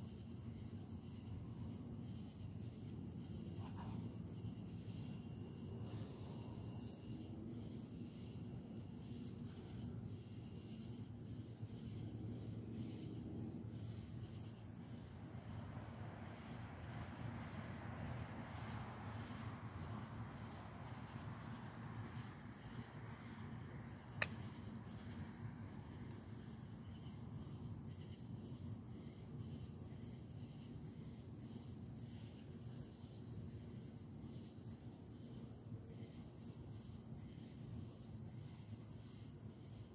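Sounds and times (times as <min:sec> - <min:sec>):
crickets chirping: 0:00.0 - 0:39.9
sharp click: 0:24.2 - 0:24.4.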